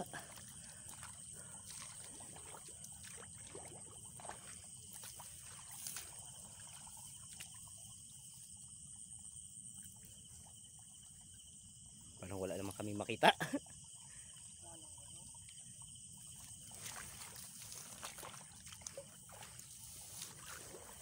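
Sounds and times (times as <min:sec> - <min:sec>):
splashing and squelching in mud: 0:00.0 - 0:07.7, 0:16.4 - 0:21.0
night insects chorus: 0:00.0 - 0:21.0.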